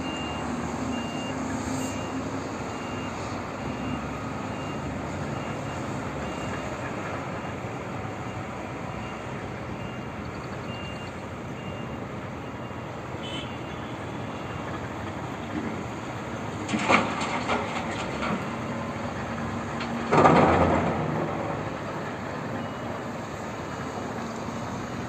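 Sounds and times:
faint reversing alarm beeps: 0:00.0 - 0:13.0, 0:22.5 - 0:23.1.

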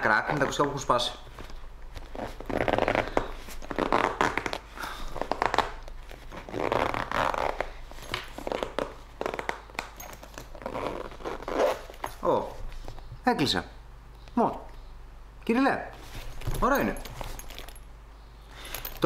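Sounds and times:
zipper rasping pulls: 0:02.0 - 0:12.2.

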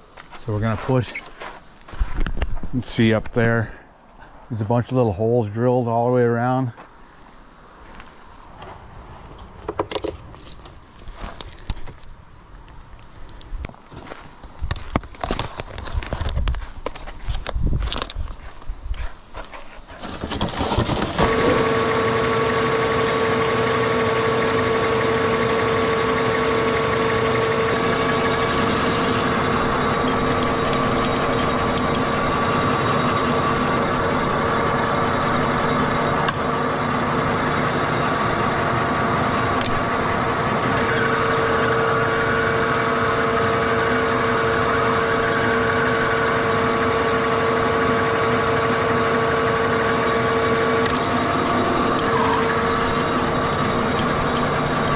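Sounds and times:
gearbox whine: 0:19.9 - 0:54.9
lathe machine drone: 0:20.4 - 0:54.9.

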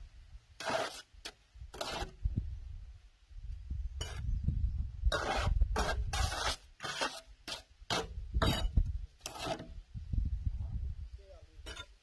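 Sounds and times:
trowel scraping bricks and mortar: 0:00.6 - 0:02.2, 0:04.0 - 0:04.3, 0:05.1 - 0:09.8, 0:11.6 - 0:12.0.

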